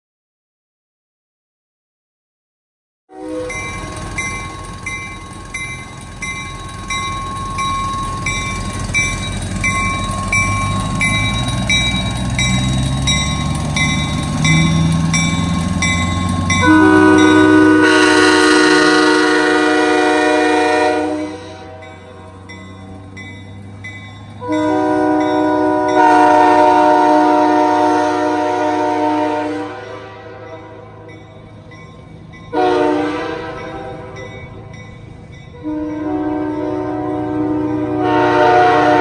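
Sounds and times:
locomotive horn chord: 3.1 - 4.5, 16.4 - 22.5, 24.4 - 31.2, 32.5 - 34.4, 35.6 - 39.0.

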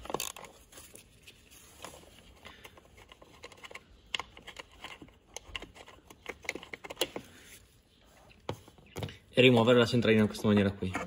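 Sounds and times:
screwdriver clicking and scraping: 0.0 - 0.8, 1.8 - 7.4.

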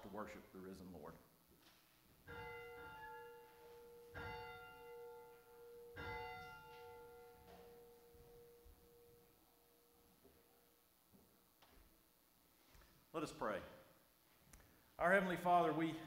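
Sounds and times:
bell ringing: 2.3 - 9.6.

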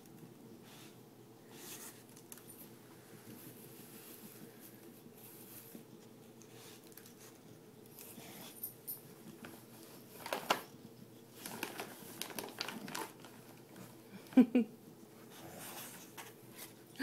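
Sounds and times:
rustling tissue paper and packaging: 9.2 - 14.1.

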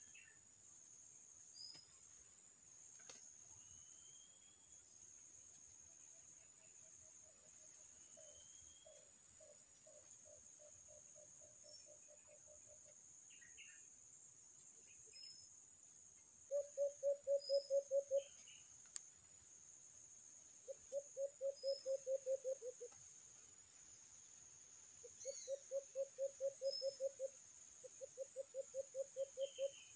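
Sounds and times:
faint bird chirps: 0.0 - 0.4, 1.5 - 2.0, 3.0 - 5.0, 6.0 - 13.9, 14.8 - 15.5, 16.5 - 18.8, 20.6 - 23.0, 25.0 - 29.9.

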